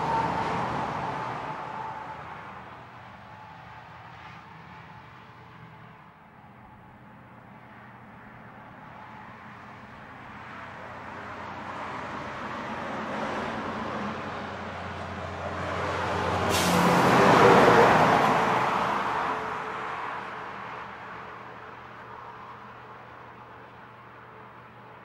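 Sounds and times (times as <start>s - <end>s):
heavy vehicle passing: 0.0s - 3.0s, 10.0s - 21.1s
brief sharp hiss: 16.5s - 16.9s.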